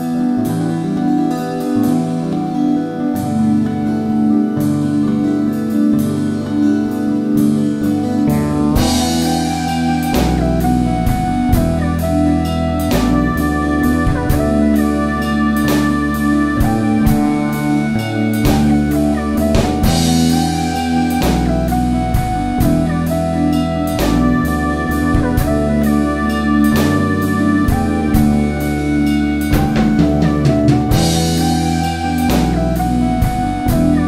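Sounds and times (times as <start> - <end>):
fretless electric bass: 0.0 - 34.0
keyboards: 0.0 - 34.0
drum kit beat: 7.3 - 34.0.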